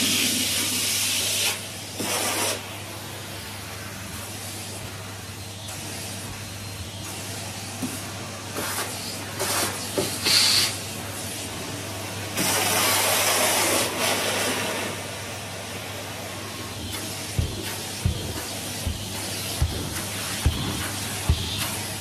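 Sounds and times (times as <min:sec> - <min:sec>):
vacuum cleaner humming: 0:00.0 - 0:22.0
air rushing through hose: 0:16.6 - 0:22.0.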